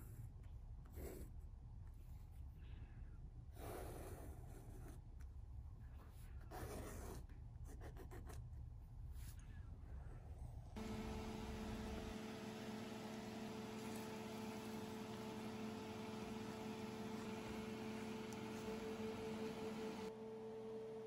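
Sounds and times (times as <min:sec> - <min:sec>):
appliance hum: 0:10.3 - 0:21.0.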